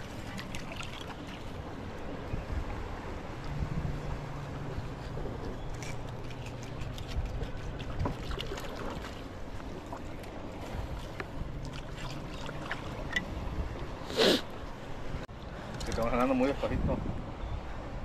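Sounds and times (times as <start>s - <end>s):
small splashes: 0.0s - 1.6s, 5.7s - 13.3s
water lapping: 0.0s - 16.5s
low steady rumble: 0.0s - 18.0s.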